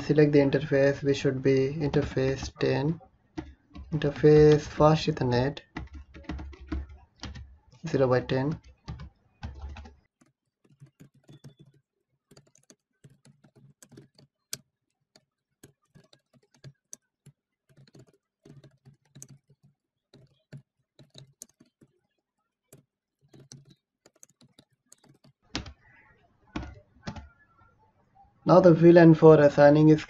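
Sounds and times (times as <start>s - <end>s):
typing on computer keyboard: 1.8s - 22.1s, 22.7s - 27.4s.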